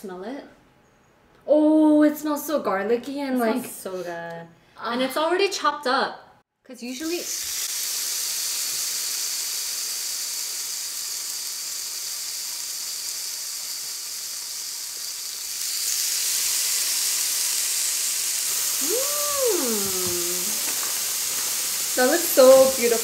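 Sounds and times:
meat sizzling on grill pan: 7.0s - 23.0s.

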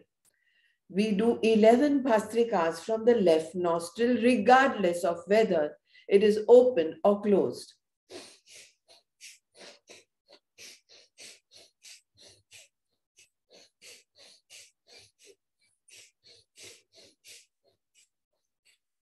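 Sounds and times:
rapid forceful nasal breathing: 8.1s - 19.0s.

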